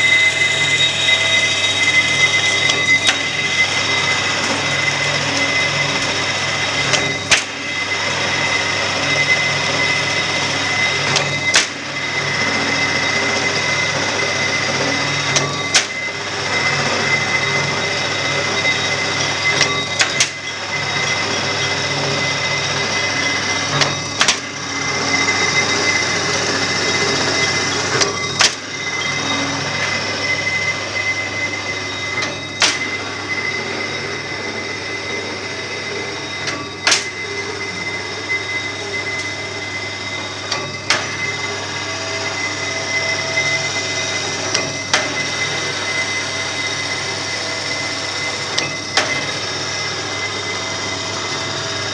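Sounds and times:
machine whining: 0.0 - 51.9.

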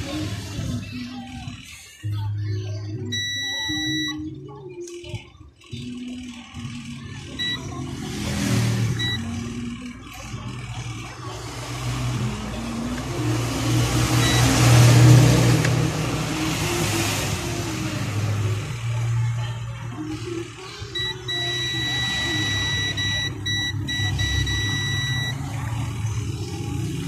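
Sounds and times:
traffic engine hum: 0.0 - 3.7, 5.8 - 27.0
short high beeps: 3.1 - 4.2, 7.4 - 7.8, 9.0 - 9.3, 14.2 - 14.7, 21.0 - 25.4
vehicles rushing past: 7.2 - 27.0.

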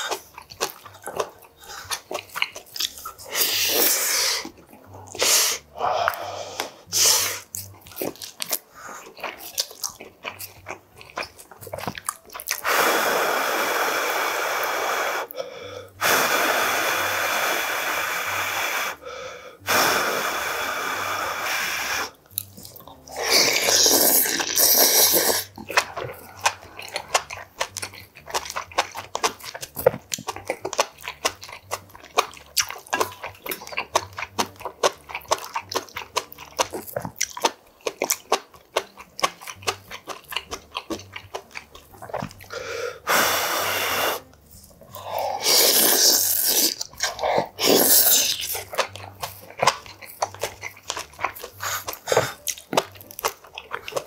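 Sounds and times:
wet chewing: 0.0 - 16.1, 20.5 - 54.0
person blowing on food: 5.2 - 7.5, 12.6 - 22.2, 23.1 - 25.6, 42.5 - 44.3, 45.0 - 48.7
loud slurp: 23.1 - 27.3, 42.5 - 44.3, 45.0 - 48.9.

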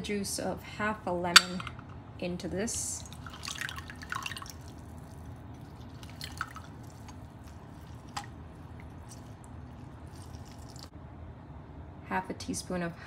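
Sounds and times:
low steady hum: 0.0 - 13.0
juice dripping into mug: 3.0 - 10.9.

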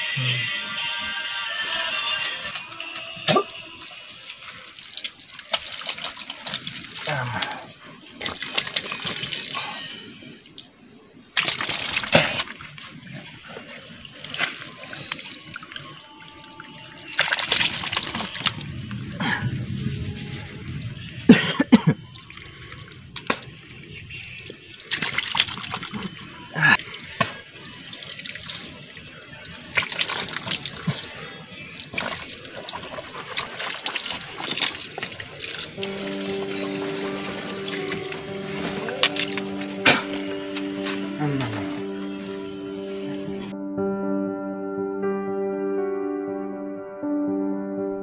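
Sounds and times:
water trickling from hose: 1.6 - 19.1, 24.6 - 40.2
hands splashing water: 4.7 - 9.9, 11.4 - 12.9, 17.1 - 18.6, 27.2 - 41.8.

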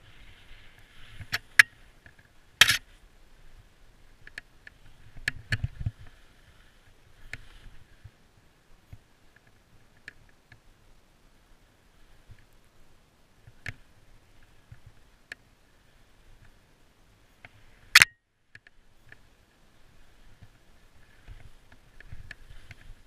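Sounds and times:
skis running through snow: 0.0 - 2.0
faint steady whine: 0.0 - 23.0.

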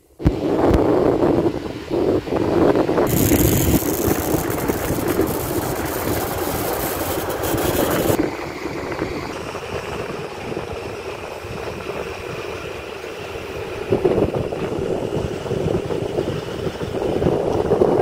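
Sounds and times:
high hiss: 3.1 - 8.2
excavator diesel engine running: 3.1 - 13.8.

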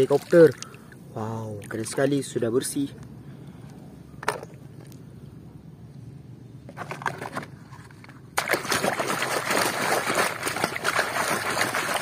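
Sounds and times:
water splashing: 0.0 - 1.0, 8.4 - 12.0.

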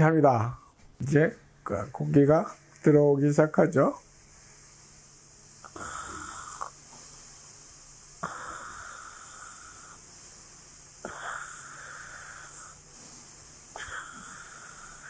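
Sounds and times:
air hissing through mask: 3.8 - 15.0.

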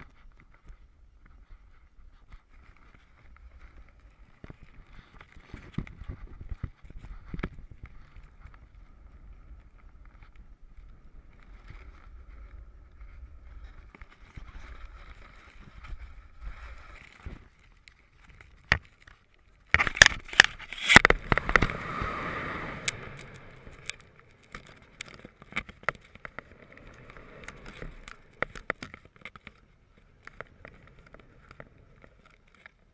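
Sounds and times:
wind buffeting microphone: 20.0 - 28.9.

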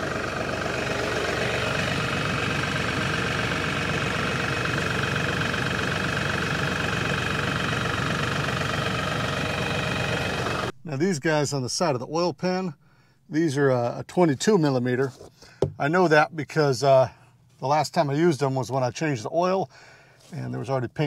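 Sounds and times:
diesel tractor engine idling: 0.0 - 11.4.

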